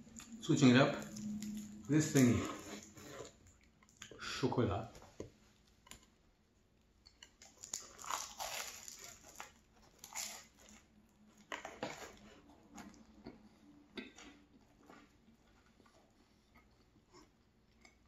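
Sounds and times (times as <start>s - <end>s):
chewing: 7.0s - 18.0s
pastry crunching when bitten: 7.1s - 13.4s.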